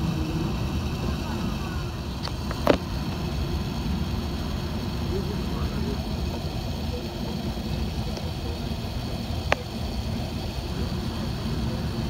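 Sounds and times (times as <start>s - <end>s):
low airplane cabin rumble: 0.0s - 12.0s.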